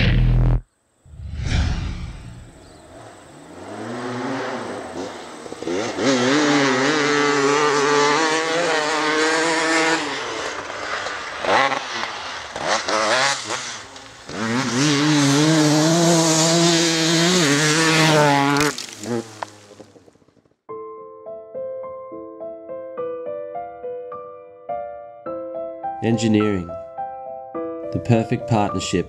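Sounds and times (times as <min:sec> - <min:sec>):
motorcycle engine revving: 0:01.7 - 0:20.3.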